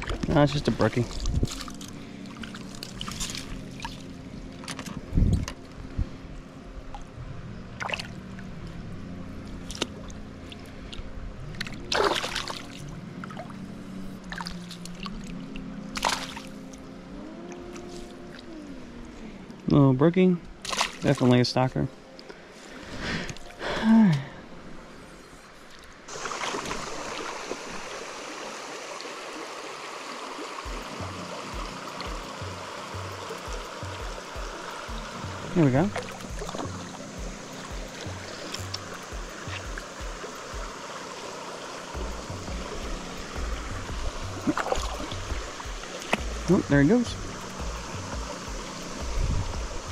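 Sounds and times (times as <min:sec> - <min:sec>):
low hum changing pitch: 0:00.0 - 0:20.6, 0:30.6 - 0:49.9
water splashing in a net: 0:11.6 - 0:13.5, 0:16.0 - 0:16.5, 0:20.6 - 0:21.3, 0:26.1 - 0:31.0, 0:44.4 - 0:46.3
stream rushing over rocks: 0:26.1 - 0:49.9
music with pulsing beat: 0:30.7 - 0:40.8, 0:42.0 - 0:49.9.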